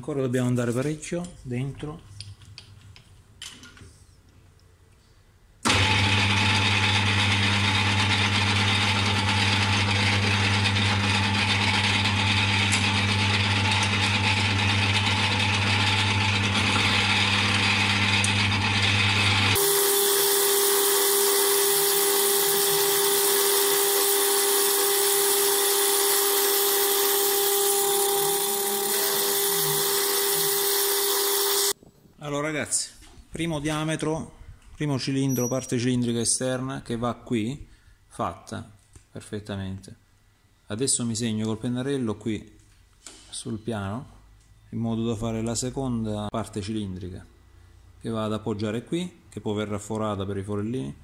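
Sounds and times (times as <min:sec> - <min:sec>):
metal lathe running: 0:11.2 - 0:31.8.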